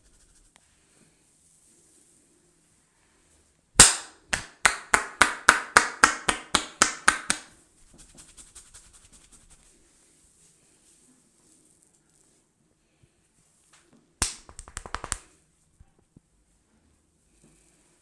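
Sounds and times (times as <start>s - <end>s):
hands slapping head: 3.8s - 8.5s, 14.2s - 15.3s
soft quick patting: 14.2s - 15.3s.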